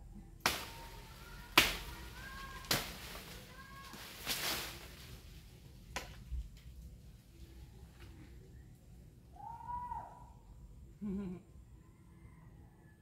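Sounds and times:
chopping strikes on branches: 0.4s - 5.2s, 5.9s - 6.3s
branches rustling crash: 0.4s - 8.2s
faint bird chirps: 8.2s - 10.3s.

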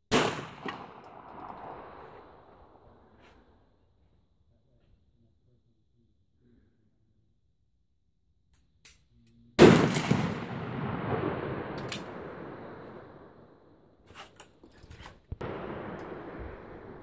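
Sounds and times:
pistol shots echoing: 0.1s - 2.5s, 9.6s - 13.5s.

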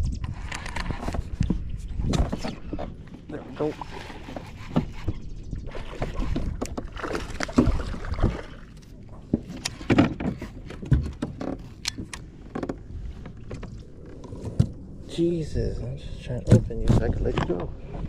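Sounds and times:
knocks and clicks on kayak: 0.5s - 14.9s
water splashing: 5.6s - 9.6s.

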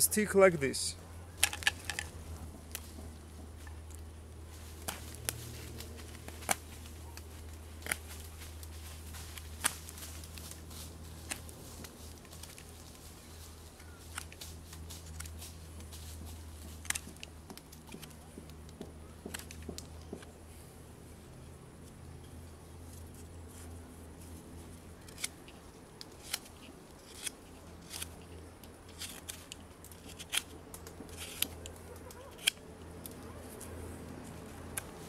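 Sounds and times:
low steady hum: 0.0s - 35.0s
knife carving wood: 25.0s - 32.6s.

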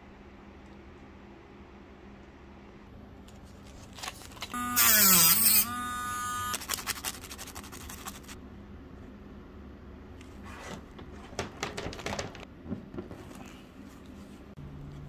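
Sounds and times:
rotary tool whining: 4.4s - 6.8s.

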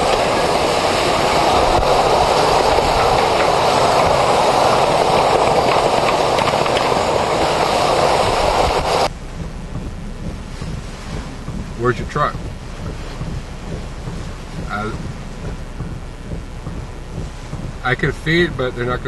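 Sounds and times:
strong wind: 0.0s - 19.0s
wind-driven rain: 0.0s - 19.0s.

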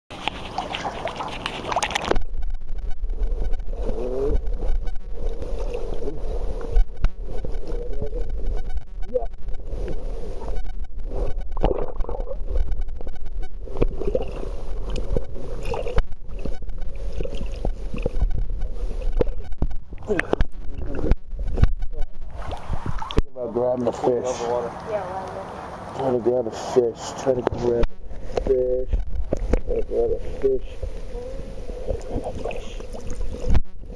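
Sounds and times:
water splashing: 0.1s - 2.6s, 13.6s - 26.0s, 30.8s - 33.6s
muffled underwater rush: 0.1s - 33.9s.

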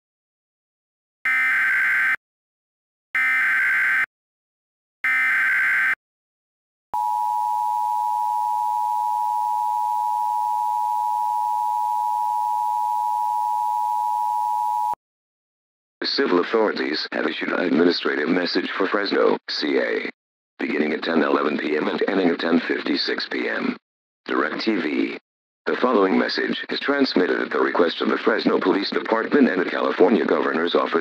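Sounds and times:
two-tone attention signal: 7.0s - 15.0s.

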